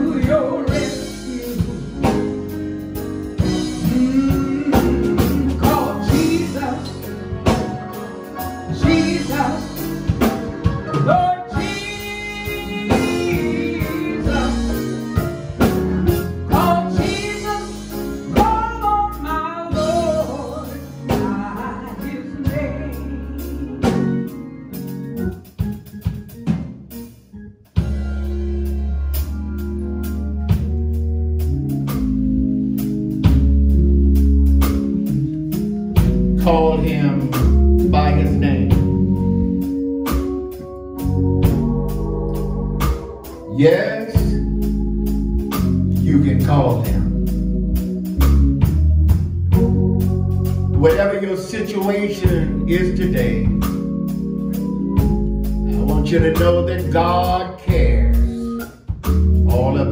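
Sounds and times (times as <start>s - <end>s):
person singing gospel: 0.0s - 25.0s, 36.4s - 39.2s, 42.1s - 47.3s, 50.7s - 53.9s, 55.0s - 58.7s, 59.5s - 59.9s
band with drums and bass: 0.0s - 59.9s
held keyboard chord: 0.0s - 59.9s.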